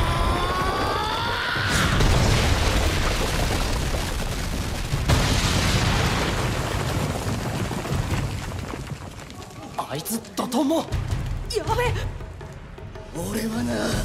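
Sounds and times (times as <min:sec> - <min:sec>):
rock grinding and tumbling: 0:02.0 - 0:11.4.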